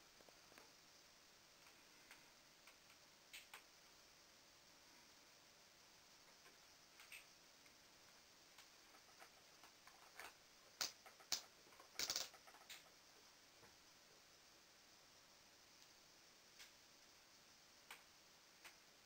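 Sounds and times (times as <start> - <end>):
faint irregular clicks: 1.6 - 3.8, 6.2 - 13.8, 15.7 - 17.2, 17.8 - 18.9.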